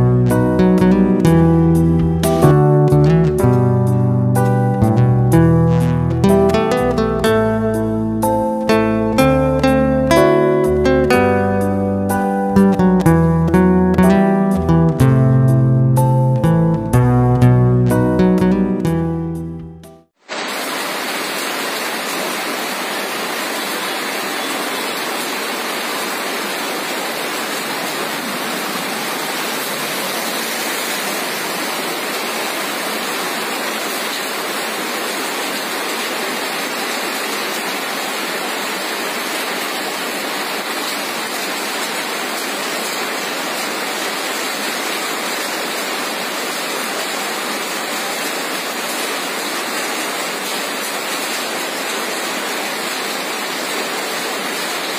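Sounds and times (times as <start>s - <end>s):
water rushing: 6.2s - 15.0s, 20.2s - 54.9s.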